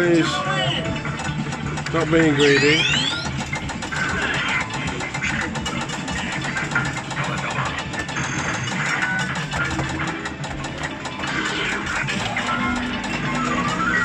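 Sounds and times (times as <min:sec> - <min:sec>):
electronic machine jingles and music: 0:00.0 - 0:03.4, 0:07.8 - 0:11.2, 0:11.8 - 0:14.0
prize wheel ticking: 0:00.0 - 0:14.0
steady machine hum: 0:00.0 - 0:14.0.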